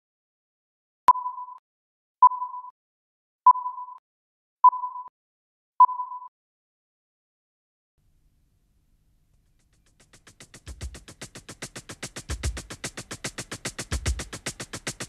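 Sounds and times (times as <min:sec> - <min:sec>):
short countdown beeps: 0:01.1 - 0:01.6, 0:02.2 - 0:02.8, 0:03.5 - 0:04.0, 0:04.6 - 0:05.1, 0:05.8 - 0:06.3.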